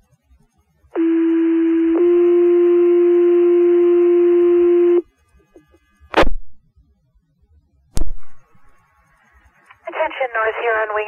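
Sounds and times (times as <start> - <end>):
short sharp radio clicks: 6.1 - 6.5.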